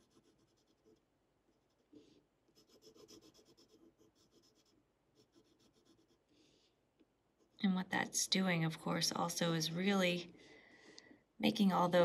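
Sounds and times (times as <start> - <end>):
pencil scratching on paper: 0.0 - 6.6, 7.3 - 7.7.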